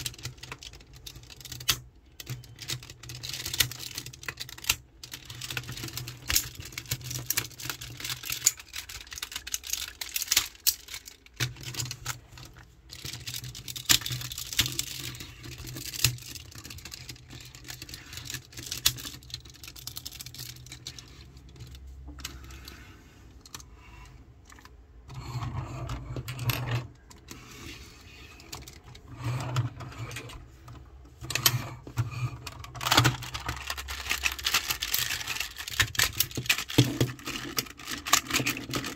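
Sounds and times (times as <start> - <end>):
plastic toy parts clicking: 0.0 - 22.8, 31.2 - 38.9.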